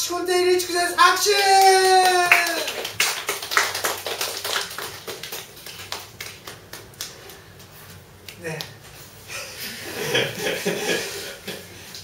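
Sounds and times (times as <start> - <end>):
small audience applauding: 1.2 - 7.7.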